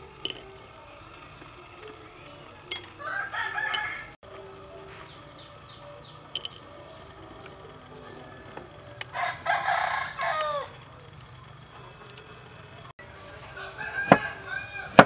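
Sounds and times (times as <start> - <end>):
rooster crowing: 3.0 - 4.7, 7.6 - 11.1, 13.2 - 15.0.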